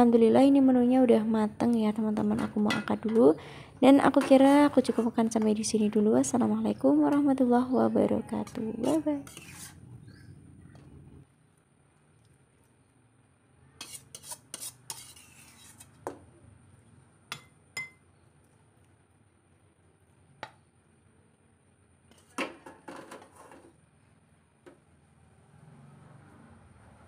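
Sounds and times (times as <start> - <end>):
metal spatula scraping a wok: 4.0 - 5.6, 8.3 - 10.2, 13.8 - 16.0, 22.1 - 23.8.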